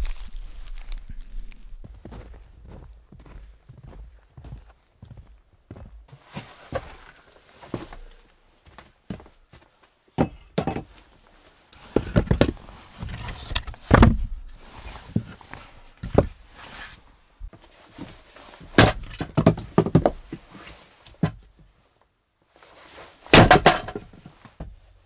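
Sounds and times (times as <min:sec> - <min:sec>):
hatchet splitting wood: 0:23.4 - 0:24.0.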